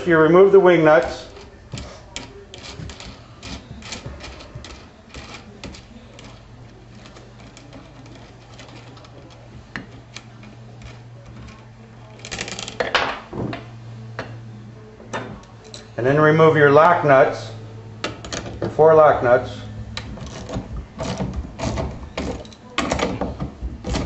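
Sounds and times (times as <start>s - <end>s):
metallic clicks and rattles: 1.0s - 13.0s
metal clinking: 15.1s - 16.0s.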